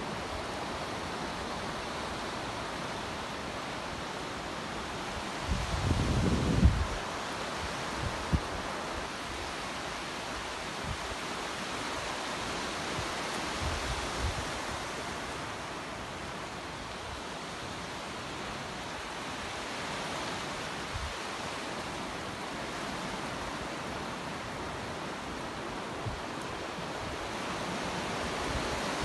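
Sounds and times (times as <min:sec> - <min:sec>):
surf washing over sand: 0:00.0 - 0:29.0.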